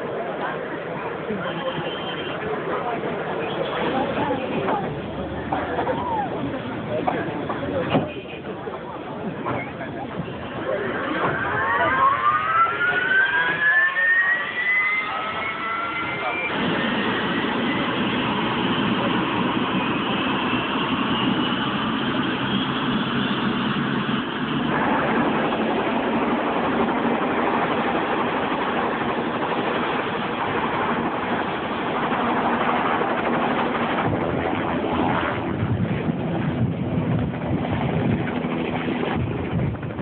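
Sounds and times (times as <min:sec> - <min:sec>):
vehicle engine noise: 0:00.5 - 0:40.0
thin rising whine: 0:10.7 - 0:18.1.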